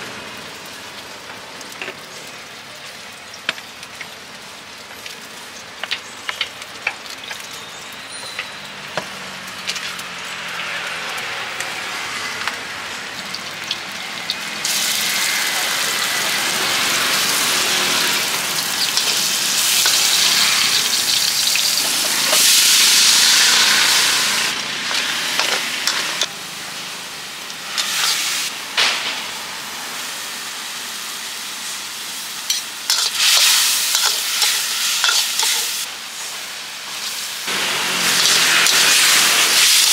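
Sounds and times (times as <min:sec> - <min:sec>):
food sizzling in a wok: 0:00.0 - 0:39.9
metal ladle clicking and scraping: 0:32.5 - 0:35.8, 0:38.2 - 0:38.9.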